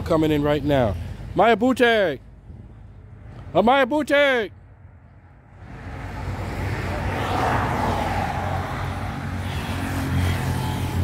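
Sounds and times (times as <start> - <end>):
vehicle passing on highway: 4.6 - 11.0.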